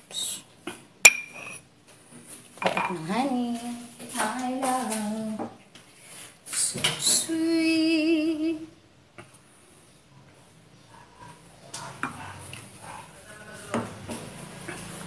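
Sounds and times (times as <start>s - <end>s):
woman singing softly: 2.8s - 5.6s, 6.6s - 8.8s.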